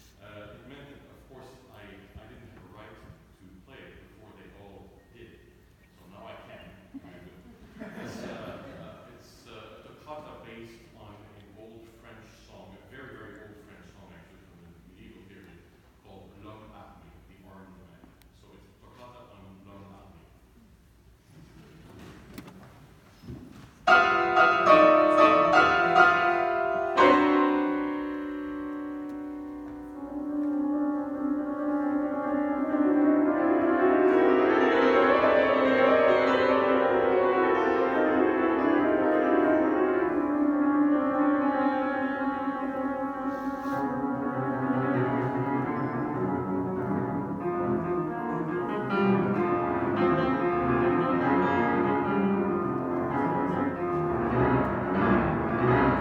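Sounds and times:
solo grand piano playing: 23.8 - 56.0.

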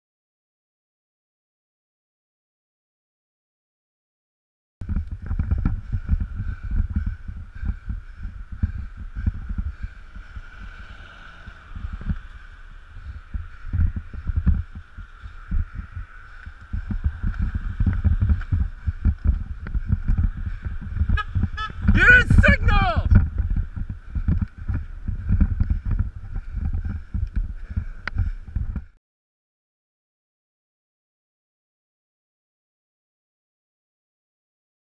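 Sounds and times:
wind buffeting microphone: 4.8 - 29.0.

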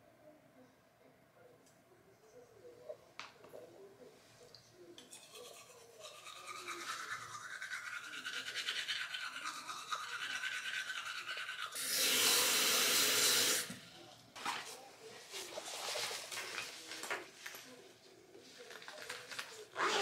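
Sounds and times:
toothbrush scrubbing teeth: 5.0 - 13.4
water running into a cup: 11.0 - 13.8.

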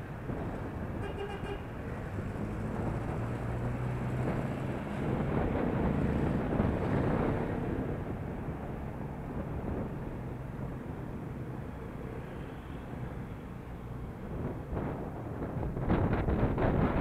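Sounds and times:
street traffic noise: 0.0 - 17.0
wind buffeting microphone: 1.7 - 11.7, 13.7 - 17.0.

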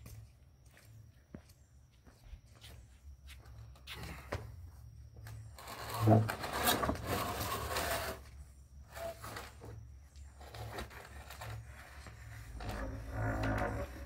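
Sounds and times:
wooden frame scraping on concrete: 5.2 - 14.0.

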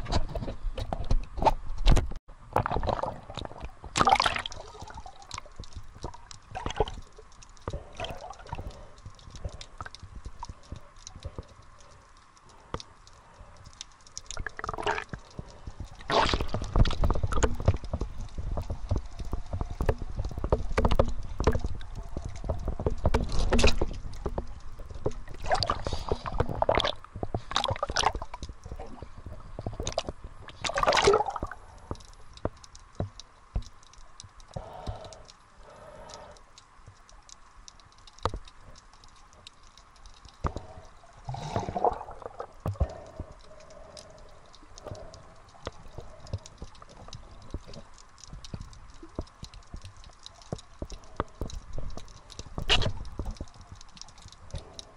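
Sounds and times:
water gurgling underwater: 2.5 - 7.1, 14.3 - 31.7, 41.2 - 43.4
small clicks and knocks: 5.2 - 30.6, 31.8 - 41.6, 42.4 - 54.9.

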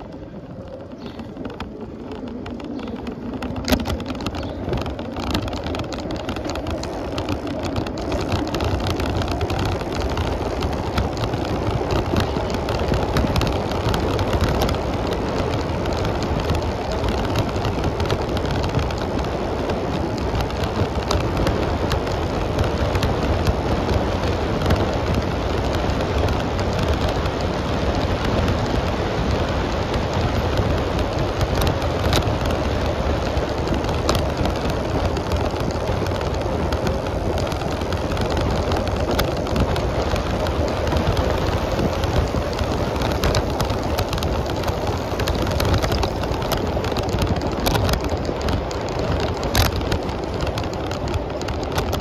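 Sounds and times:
bicycle tyre rolling: 0.0 - 52.0
sharp clicks and rattles: 0.0 - 52.0
wind noise: 0.0 - 52.0.

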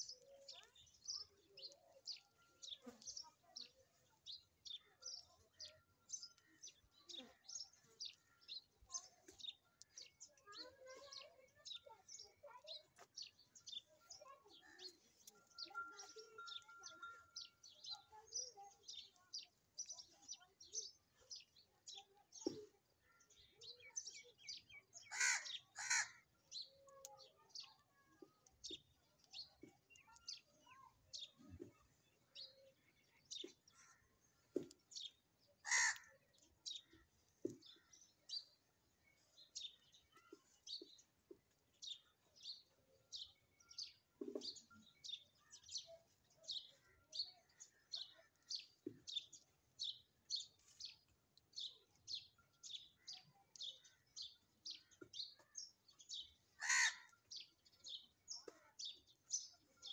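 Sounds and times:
birds chirping: 0.0 - 59.9
harsh bird calls: 25.0 - 26.2, 35.6 - 36.2, 56.6 - 57.2.

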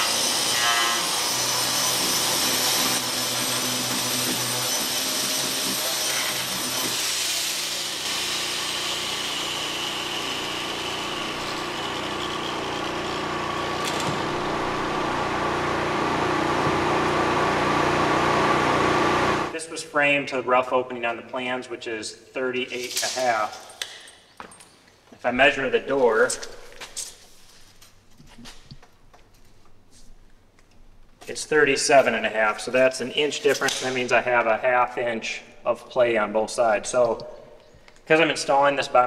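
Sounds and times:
angle grinder grinding concrete: 0.0 - 19.5.

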